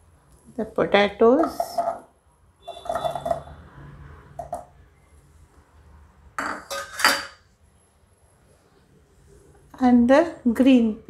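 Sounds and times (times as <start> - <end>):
kitchenware clattering: 1.3 - 2.1, 2.7 - 3.6, 6.4 - 7.5.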